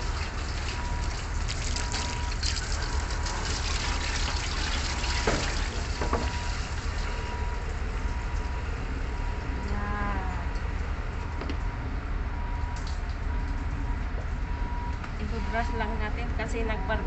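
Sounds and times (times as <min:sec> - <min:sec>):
water running from garden hose: 0:00.0 - 0:07.0.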